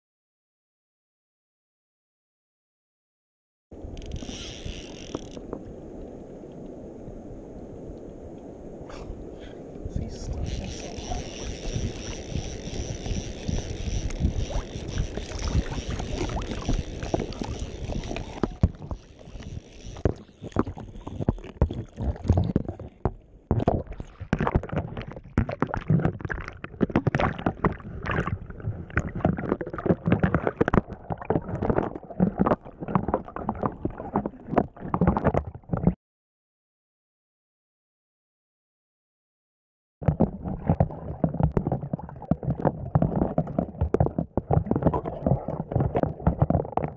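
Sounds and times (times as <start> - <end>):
steady rushing water: 5.4 - 35.6
water gurgling: 9.8 - 36.0, 40.0 - 46.9
water sloshing and splashing: 10.0 - 36.0, 40.0 - 46.9.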